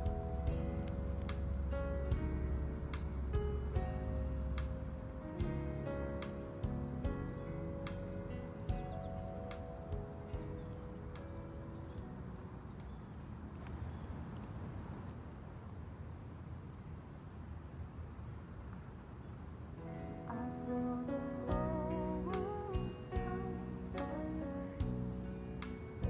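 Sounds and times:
soft background music: 0.0 - 13.5, 19.8 - 26.0
crickets chirping: 0.0 - 26.0.

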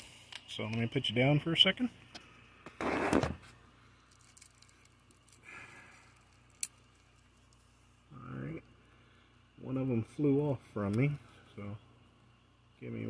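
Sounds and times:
phone scraping rustle: 2.6 - 5.4.

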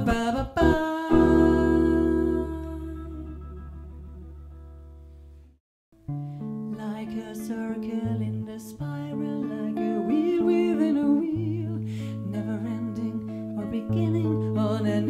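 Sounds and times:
woman singing softly without words: 0.0 - 3.5, 6.7 - 15.0
jazz guitar chords: 0.0 - 7.4.

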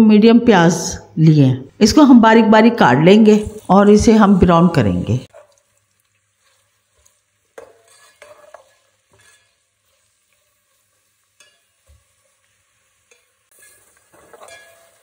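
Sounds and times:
onions sizzling in oil: 3.1 - 15.0
ladle scraping pot: 5.3 - 15.0.

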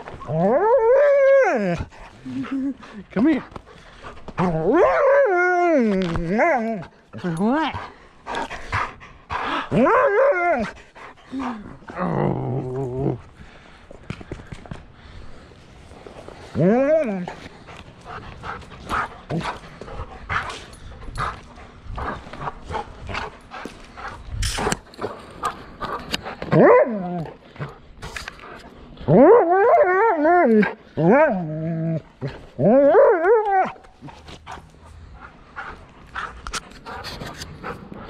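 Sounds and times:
dog whining and yowling: 0.1 - 2.5, 4.4 - 7.5, 9.7 - 12.8, 29.1 - 34.1.

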